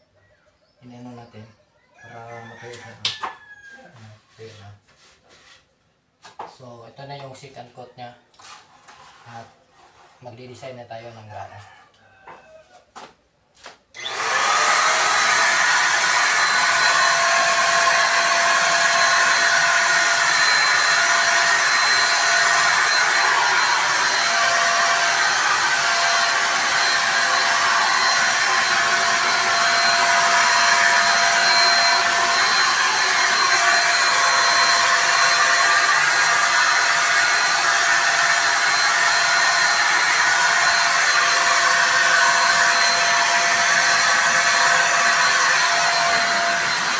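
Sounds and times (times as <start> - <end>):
electric spray gun running: 14.0 - 46.9.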